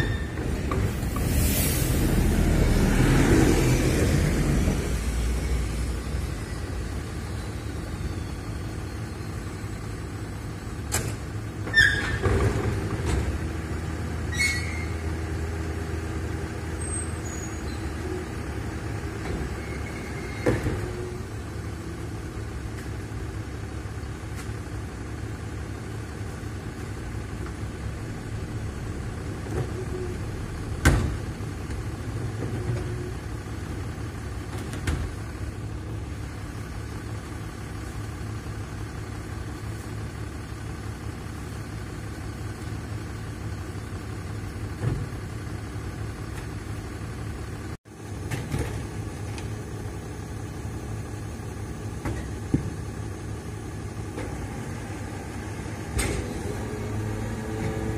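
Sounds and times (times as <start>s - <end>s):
bin lift metallic squeals: 0.0s - 0.7s, 11.6s - 12.4s, 14.3s - 15.2s, 16.8s - 18.3s, 19.5s - 20.8s
wheelie bins clanking and banging: 0.0s - 1.4s, 10.9s - 13.6s
bus engine rumble: 0.0s - 57.9s
diesel truck engine idling: 20.9s - 55.9s.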